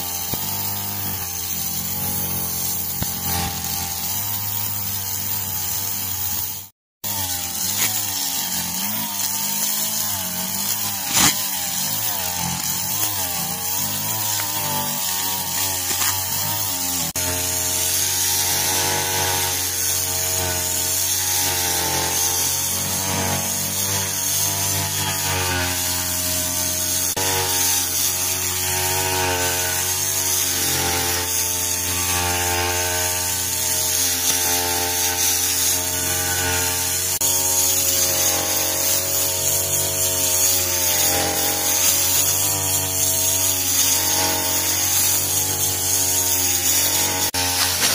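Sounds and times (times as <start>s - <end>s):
brush cutter engine running: 0.0s - 47.9s.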